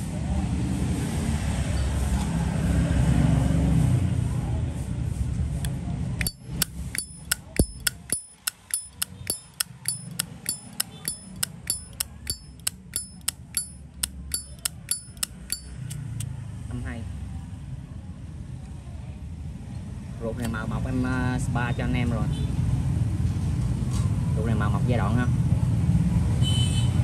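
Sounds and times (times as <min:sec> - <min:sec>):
lighter lid clicking open and shut: 0:06.2 - 0:16.2.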